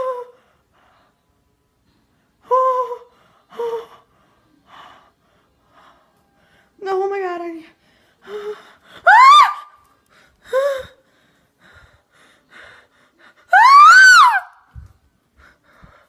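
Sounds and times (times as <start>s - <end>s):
girl screaming: 9.0s - 9.7s, 13.5s - 14.6s
girl squealing: 9.1s - 9.7s, 13.5s - 14.6s.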